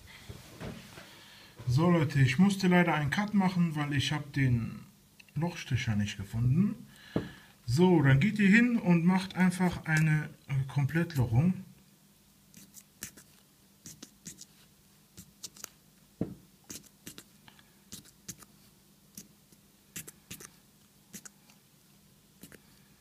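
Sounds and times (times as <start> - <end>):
dull knock: 16.2 - 16.4.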